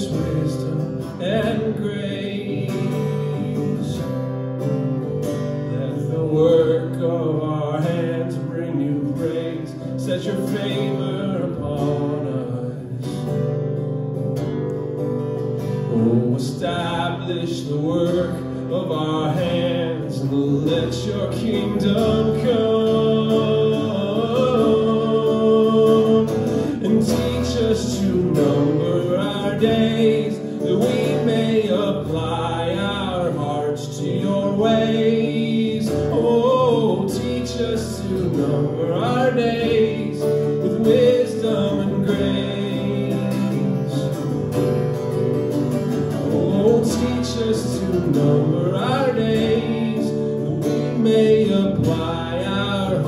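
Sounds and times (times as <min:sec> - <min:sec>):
man singing: 0:00.0 - 0:13.4, 0:15.7 - 0:44.6, 0:45.9 - 0:53.0
acoustic guitar: 0:00.0 - 0:53.0.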